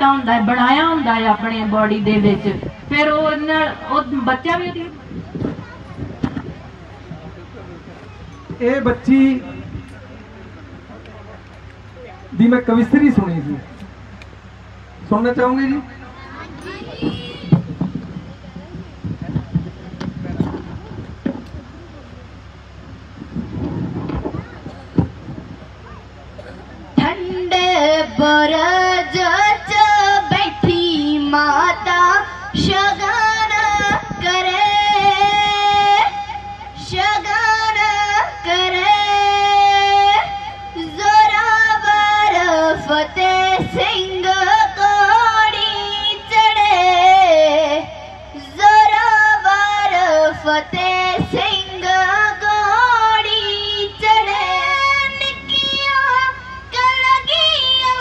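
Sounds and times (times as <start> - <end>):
woman singing into a microphone: 27.0 - 58.0.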